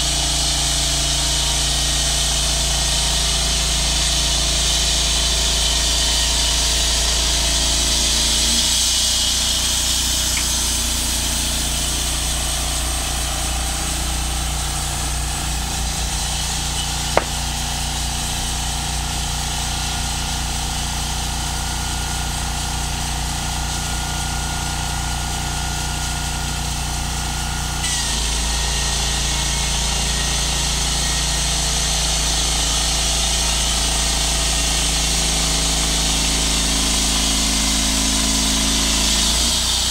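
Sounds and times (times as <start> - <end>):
band sawmill cutting log: 0.0 - 39.9
sharp click: 16.8 - 17.5.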